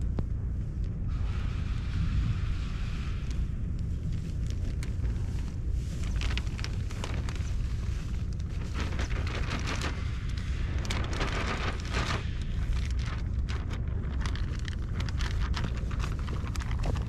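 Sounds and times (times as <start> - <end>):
wind buffeting microphone: 1.1 - 17.0
plastic bags crinkling: 4.2 - 17.0.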